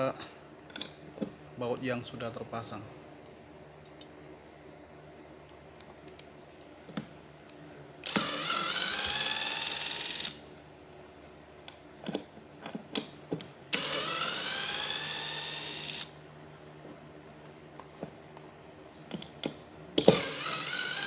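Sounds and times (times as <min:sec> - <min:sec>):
electric screwdriver whining: 0:08.0 - 0:10.4, 0:13.7 - 0:16.2, 0:20.0 - 0:21.0.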